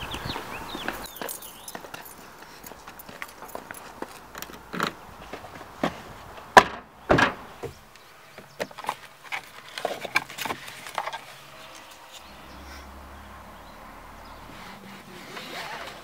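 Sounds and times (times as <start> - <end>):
footsteps: 0.3 - 6.5
clicks and rustling in compartment: 8.4 - 12.1.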